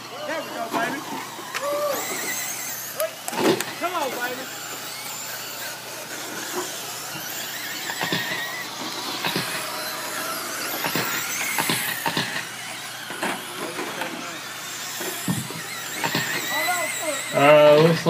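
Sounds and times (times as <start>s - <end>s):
rc truck motors whining: 0.0s - 18.0s
sharp clicks and knocks: 9.2s - 9.6s, 10.8s - 14.1s.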